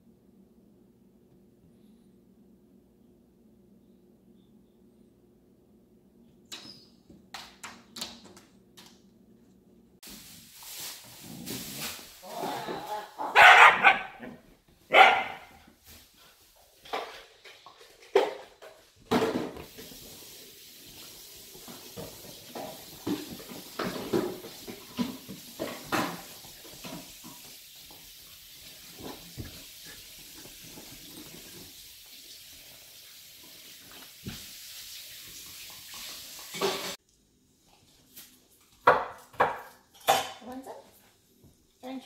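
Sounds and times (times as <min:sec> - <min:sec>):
faint steady hiss: 0:09.3 - 0:13.3, 0:14.3 - 0:42.0
dogs scuffling on leather sofa: 0:10.1 - 0:12.2.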